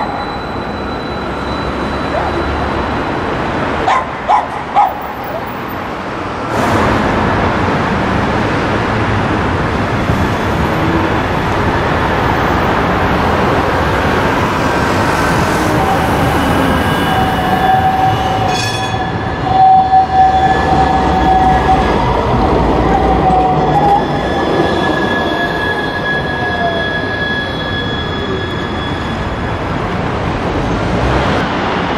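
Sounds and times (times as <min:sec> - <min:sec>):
high wheel squeal: 0:00.0 - 0:03.8, 0:10.1 - 0:30.0
tram wheels rumbling on rail: 0:00.0 - 0:31.9.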